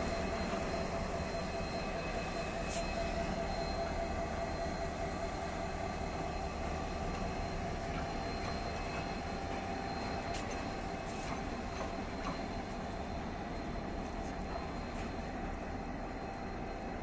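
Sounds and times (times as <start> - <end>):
diesel locomotive engine drone: 0.0 - 17.0
steady whine: 0.0 - 17.0.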